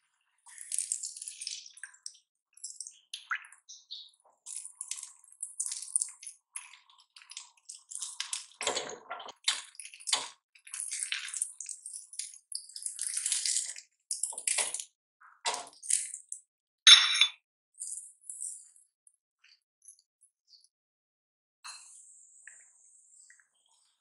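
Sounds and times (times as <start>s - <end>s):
spatula stirring and scraping: 4.3s - 14.8s.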